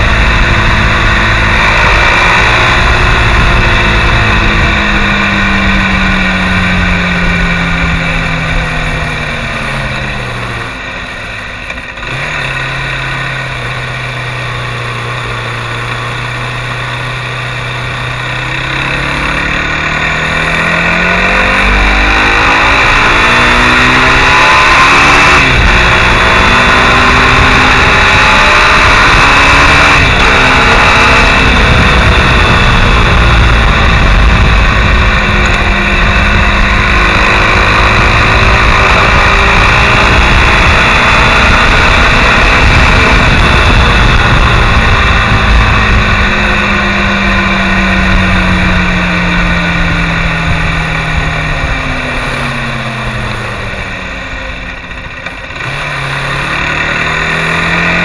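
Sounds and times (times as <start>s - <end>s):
motorcycle engine at speed: 0.0s - 58.0s
wind rush on microphone: 20.2s - 56.1s.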